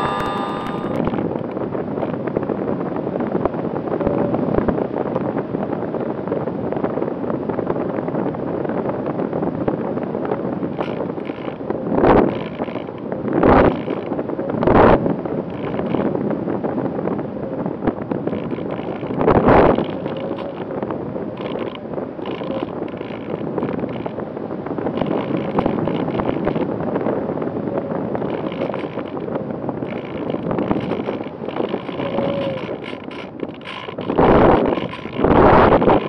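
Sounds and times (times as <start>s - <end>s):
electric motor whine: 0.0s - 1.1s
wind rushing over microphone: 0.0s - 36.0s.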